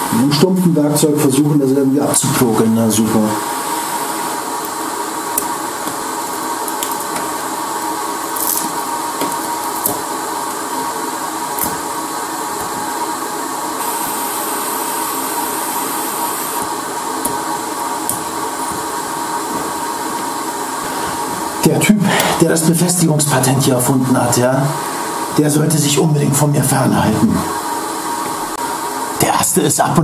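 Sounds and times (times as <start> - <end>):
constant hum: 0.0 - 30.0
hot-air blower running: 0.0 - 30.0.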